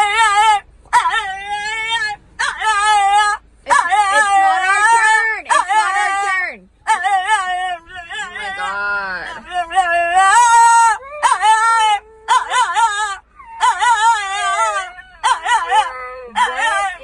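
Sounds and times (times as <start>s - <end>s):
dog howling: 6.9s - 17.0s.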